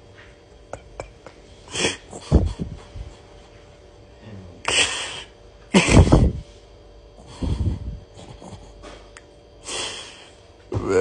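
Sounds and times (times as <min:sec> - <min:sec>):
man snorting and hawking: 0:01.7 - 0:03.1, 0:04.3 - 0:06.5, 0:07.2 - 0:09.0.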